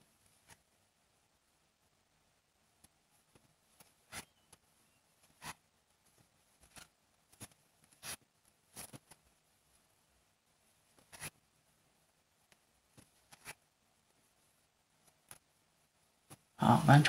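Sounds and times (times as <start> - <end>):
crochet hook scratching yarn: 3.8 - 4.6, 5.2 - 5.7, 6.6 - 9.2, 11.0 - 11.4, 13.0 - 13.6.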